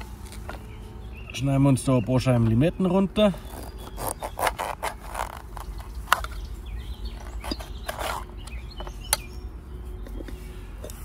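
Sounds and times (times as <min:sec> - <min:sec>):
faint birds chirping: 0:00.0 - 0:11.0.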